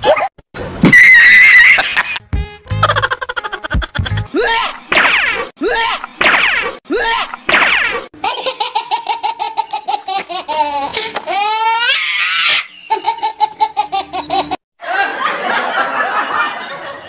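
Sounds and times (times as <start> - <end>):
high-pitched staccato laughter: 1.6 - 4.8.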